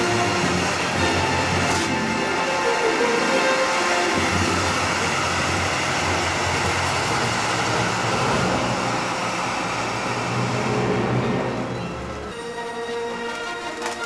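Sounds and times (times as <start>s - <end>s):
spark fountains hissing: 0.0s - 10.5s.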